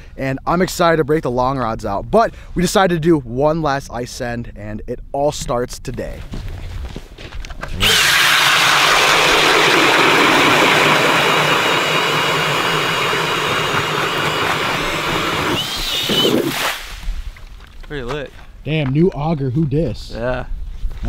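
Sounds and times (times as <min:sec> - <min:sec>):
auger grinding through ice: 0:07.7 - 0:16.7
drill motor whine: 0:07.8 - 0:16.5.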